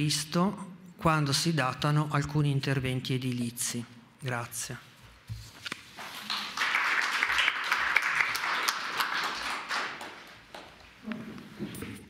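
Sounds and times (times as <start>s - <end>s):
audience applauding: 6.0s - 10.7s.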